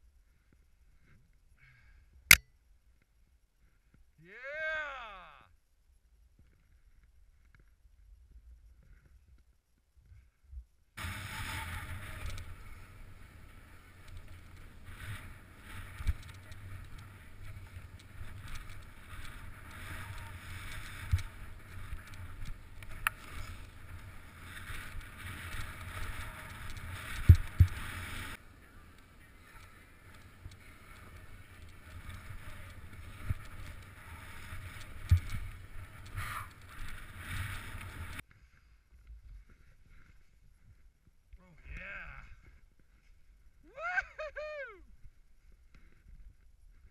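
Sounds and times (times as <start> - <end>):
skis sliding on snow: 11.0 - 38.7.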